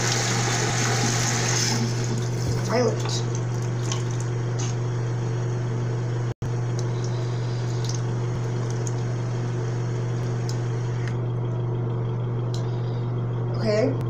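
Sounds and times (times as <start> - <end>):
water splashing at a sink: 0.0 - 4.8, 6.7 - 9.3
steady low hum: 1.7 - 14.0.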